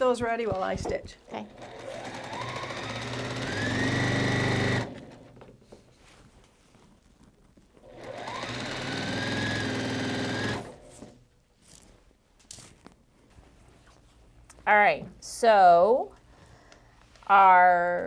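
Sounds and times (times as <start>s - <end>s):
sewing machine stitching: 1.4s - 5.4s, 7.8s - 11.2s.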